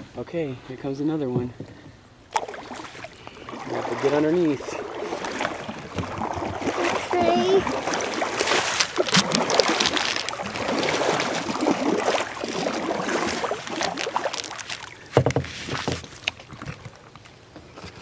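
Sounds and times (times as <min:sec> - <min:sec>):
river water rushing and splashing: 0:02.3 - 0:15.0
paddle strokes in water: 0:02.3 - 0:18.0.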